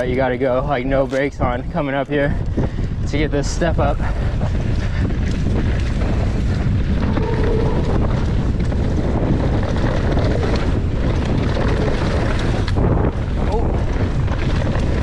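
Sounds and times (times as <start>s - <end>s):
mountain bike rattling: 0.0s - 15.0s
wind buffeting microphone: 0.0s - 15.0s.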